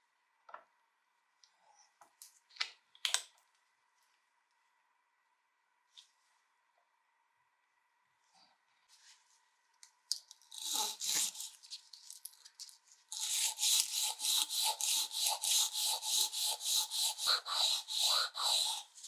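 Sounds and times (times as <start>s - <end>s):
sandpaper rubbing wood: 10.6s - 11.7s, 13.2s - 19.0s.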